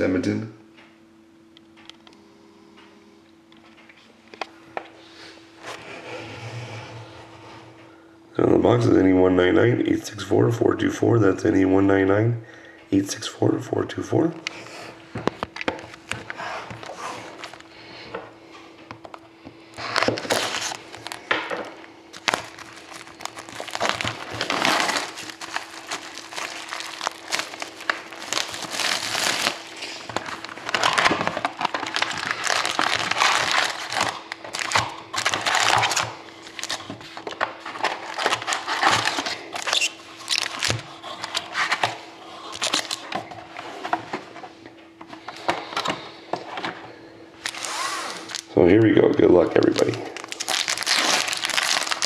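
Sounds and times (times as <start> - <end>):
foil packs rustling: 19.1 - 44.4, 47.4 - 52.0
plastic wrap and cardboard crinkling: 19.7 - 44.4, 47.4 - 52.0.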